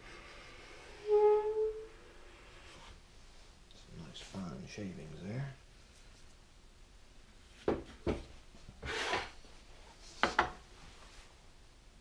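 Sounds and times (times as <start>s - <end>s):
tools knocking on wooden bench: 7.7s - 8.3s.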